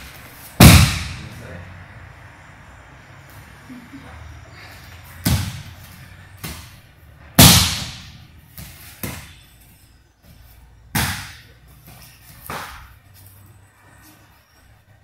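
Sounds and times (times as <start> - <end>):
body slapping onto mat: 10.9 - 13.0.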